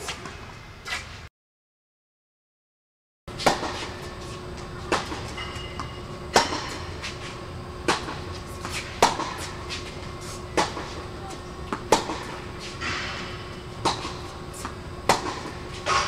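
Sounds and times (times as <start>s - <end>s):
tennis ball hit by racquet: 3.4s - 4.2s, 4.8s - 7.2s, 7.8s - 11.0s, 11.7s - 16.0s.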